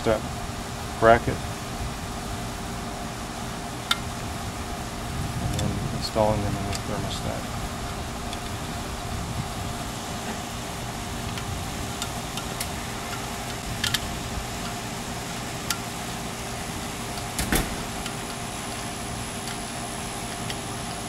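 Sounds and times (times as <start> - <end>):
background hum: 0.0 - 21.0
screwdriver metallic clicks and taps: 11.3 - 14.0, 20.3 - 20.6.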